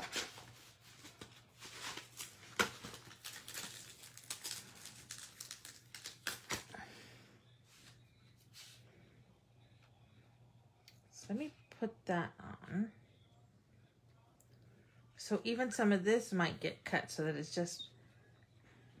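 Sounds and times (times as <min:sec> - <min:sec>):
plastic sleeves crinkling: 0:00.0 - 0:06.7.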